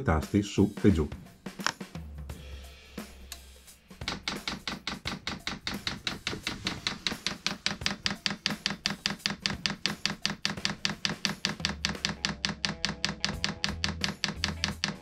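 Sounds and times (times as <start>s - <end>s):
fuel pump ticking: 4.0s - 15.0s.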